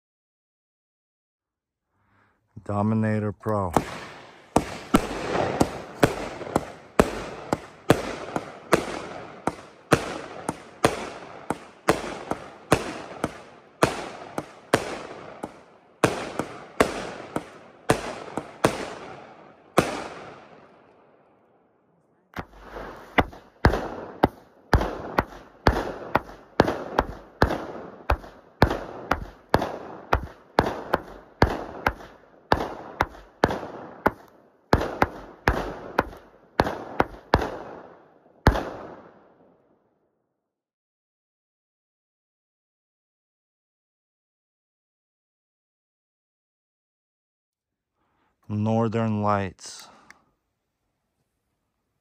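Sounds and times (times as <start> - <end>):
firework shots bursting overhead: 3.5 - 21.1, 22.4 - 39.5.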